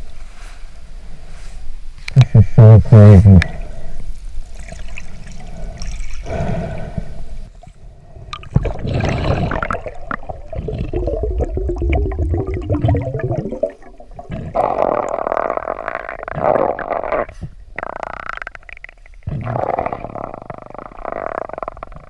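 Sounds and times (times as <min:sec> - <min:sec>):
underwater gurgling: 0:04.4 - 0:22.0.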